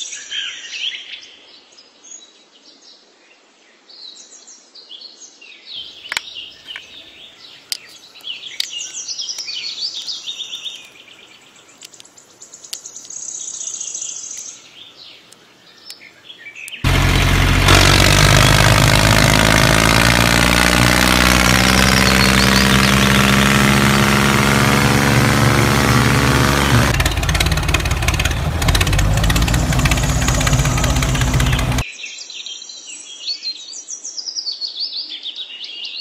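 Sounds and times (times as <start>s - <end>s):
birds chirping: 5.8s - 31.8s
tractor engine running: 16.8s - 31.8s.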